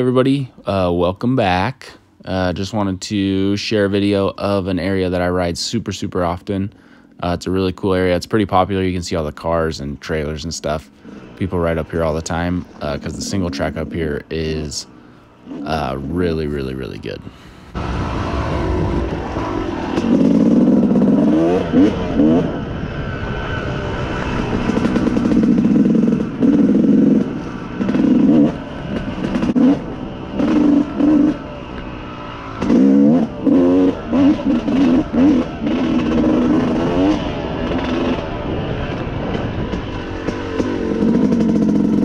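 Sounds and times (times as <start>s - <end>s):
two-stroke dirt bike revving: 9.2s - 42.0s.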